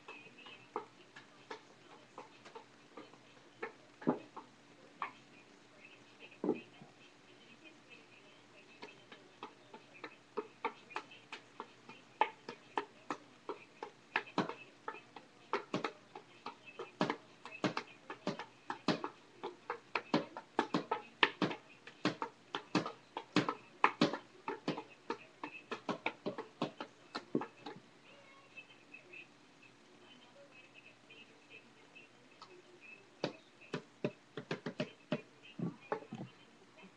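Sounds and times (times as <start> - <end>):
juggling clubs slapping into hands: 14.2 - 14.6, 15.5 - 16.0, 16.9 - 19.2, 19.9 - 27.8.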